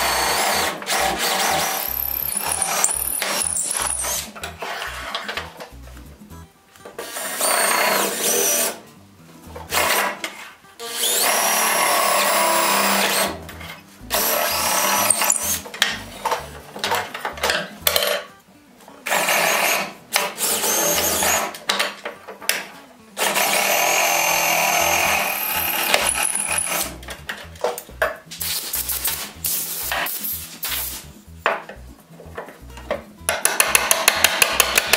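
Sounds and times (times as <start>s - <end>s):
electric drill boring into wood: 0.0s - 4.3s, 10.8s - 13.3s, 14.2s - 15.6s, 20.4s - 21.5s, 23.2s - 26.9s, 33.6s - 34.9s.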